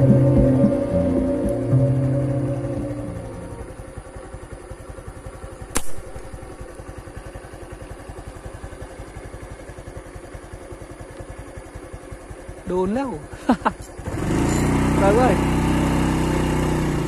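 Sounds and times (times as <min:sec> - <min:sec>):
engine idling: 0:00.0 - 0:17.0
slingshot rubber band snap: 0:05.7 - 0:06.2.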